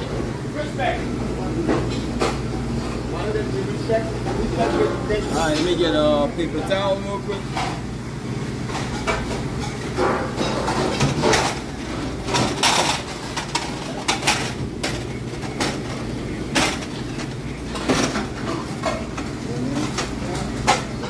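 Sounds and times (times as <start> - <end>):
steady low hum: 0.0 - 21.0
dishes and utensils clinking: 4.2 - 6.0, 8.6 - 21.0.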